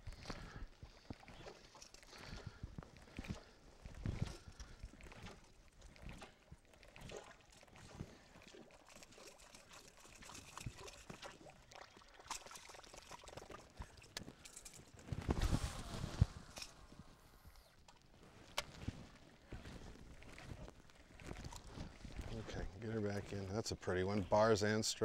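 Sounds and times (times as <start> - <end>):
water dripping and trickling: 0.0 - 15.1.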